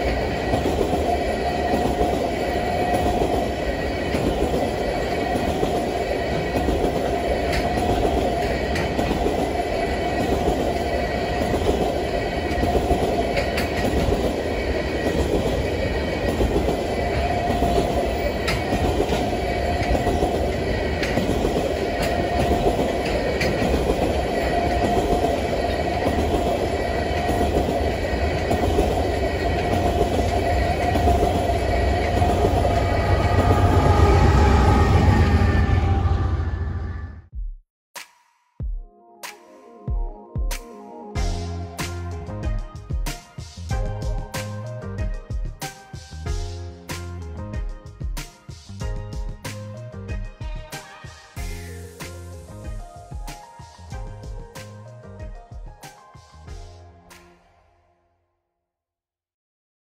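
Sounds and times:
train wheels rumbling on rails: 0.0s - 37.3s.

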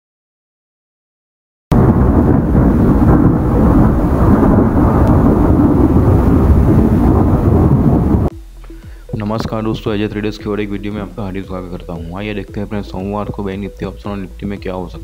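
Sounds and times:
thunder-like rumbling: 1.7s - 8.3s.

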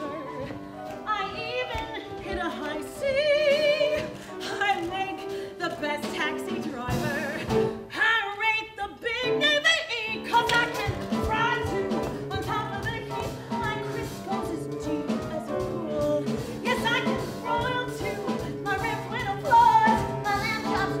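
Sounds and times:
instrumental accompaniment: 9.1s - 21.0s.

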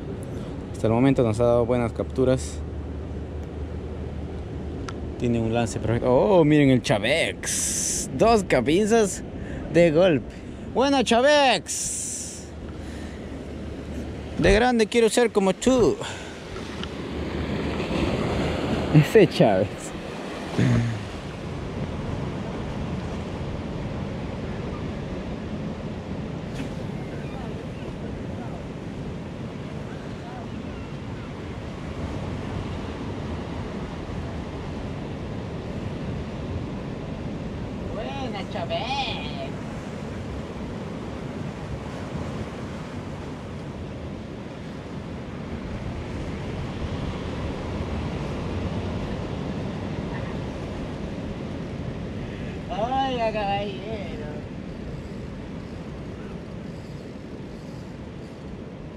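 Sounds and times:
surf washing against rocks: 4.7s - 58.9s
surf washing onto rocky shore: 5.0s - 30.6s.

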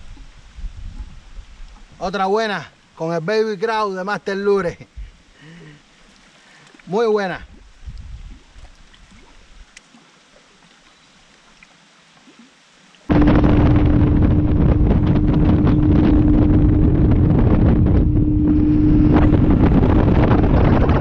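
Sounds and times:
wind rushing on microphone: 0.0s - 2.0s, 7.4s - 9.2s, 13.1s - 21.0s
outboard motor droning: 13.1s - 21.0s.

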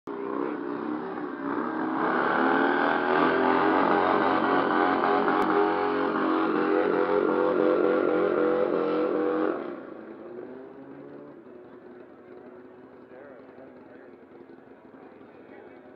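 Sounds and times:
motorcycle engine revving high: 0.1s - 12.2s.

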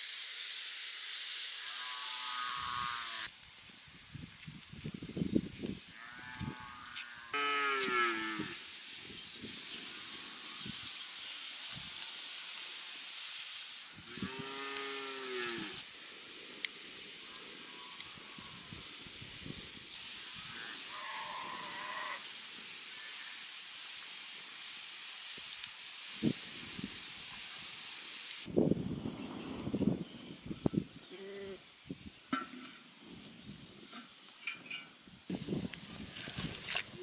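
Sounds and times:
steady hiss: 0.0s - 37.0s.

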